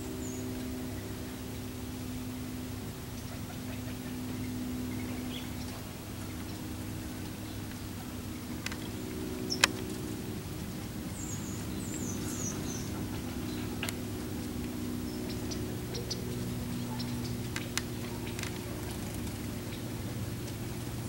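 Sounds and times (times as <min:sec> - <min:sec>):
small birds chirping: 0:00.0 - 0:02.3, 0:03.1 - 0:21.0
steady low hum: 0:00.0 - 0:21.0
sharp clicks: 0:08.6 - 0:08.9, 0:09.5 - 0:09.9, 0:17.4 - 0:19.3.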